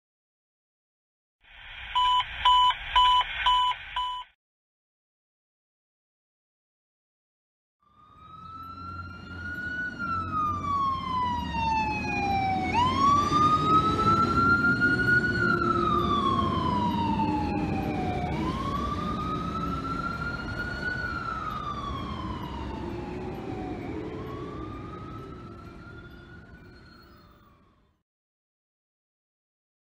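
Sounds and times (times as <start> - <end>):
fire engine siren wailing: 7.8 - 28.0
truck engine rumble: 8.0 - 27.6.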